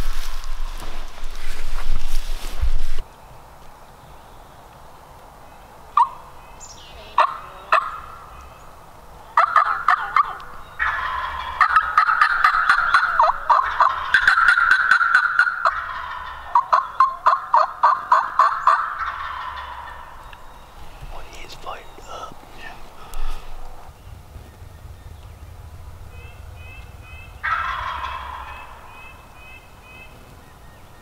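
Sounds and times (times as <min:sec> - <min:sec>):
turkey yelping: 0:07.2 - 0:08.2, 0:09.4 - 0:20.4, 0:26.8 - 0:29.2.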